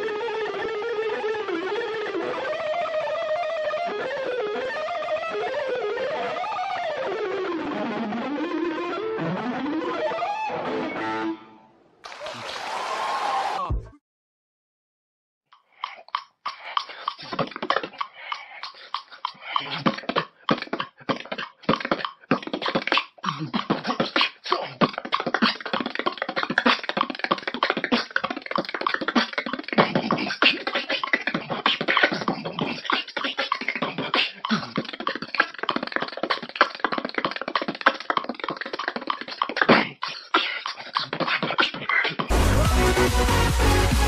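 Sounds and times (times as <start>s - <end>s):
man beatboxing: 15.8s - 44.0s
electronic dance music: 42.3s - 44.0s.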